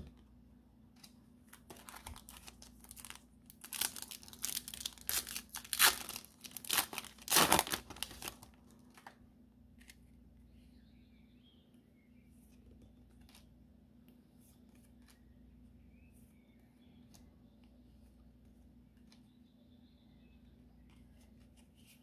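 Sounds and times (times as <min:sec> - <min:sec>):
foil wrapper tearing and crinkling: 0:01.6 - 0:09.0.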